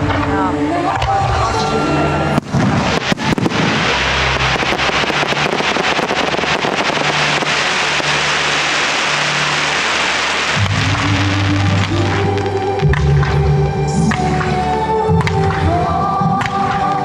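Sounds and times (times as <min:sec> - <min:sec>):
fireworks bursts: 0:02.3 - 0:13.2
fireworks crackling: 0:02.3 - 0:17.0.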